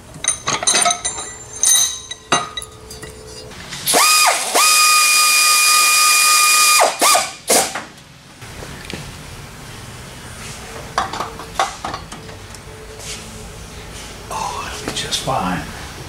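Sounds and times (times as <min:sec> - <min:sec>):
power tool motor whirring: 0:03.9 - 0:07.7.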